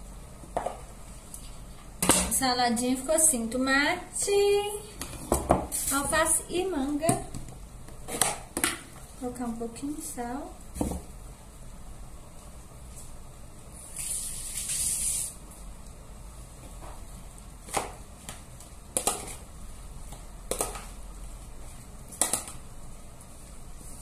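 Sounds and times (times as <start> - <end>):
salt sprinkling hiss: 13.8 - 15.5.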